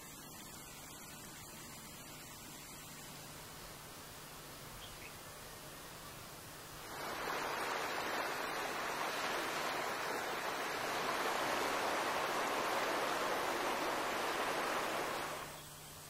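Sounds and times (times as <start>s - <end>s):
river water rushing over rapids: 6.7s - 15.6s.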